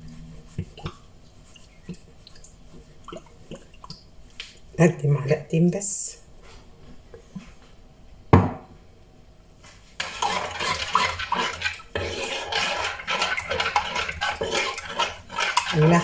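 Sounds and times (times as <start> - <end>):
utensil stirring in metal bowl: 10.0 - 16.0.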